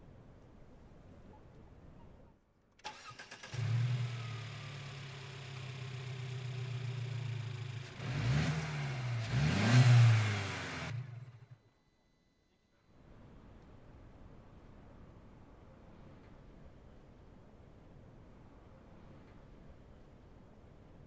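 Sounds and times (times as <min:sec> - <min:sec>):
car starter turning: 0:02.8 - 0:05.6
car engine idling and revving: 0:03.4 - 0:11.9.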